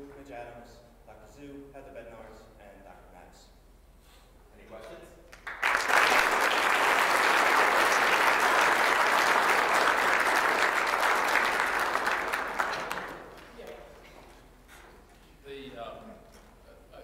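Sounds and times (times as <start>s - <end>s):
audience applauding: 5.3s - 13.8s.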